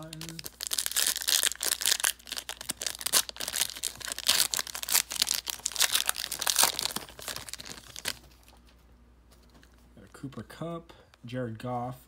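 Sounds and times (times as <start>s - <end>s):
plastic wrapper crinkling and tearing: 0.0s - 8.7s.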